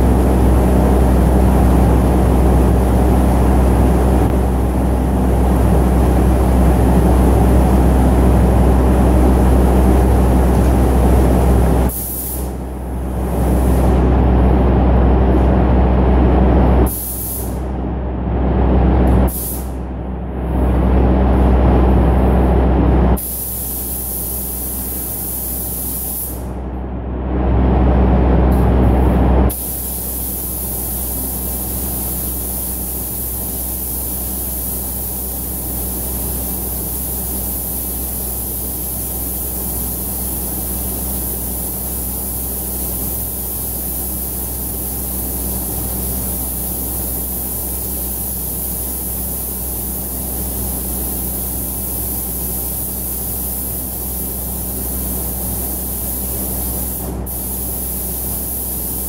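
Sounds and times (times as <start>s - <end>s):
steady low hum: 0.0s - 59.0s
spray gun hissing: 11.9s - 12.6s, 16.9s - 17.6s, 19.3s - 19.7s, 23.2s - 26.4s, 29.5s - 59.0s.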